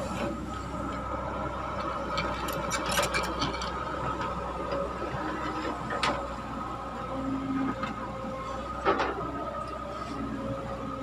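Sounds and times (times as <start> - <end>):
excavator diesel engine whining: 0.0 - 11.0
metal clanks and rattles: 2.1 - 3.8.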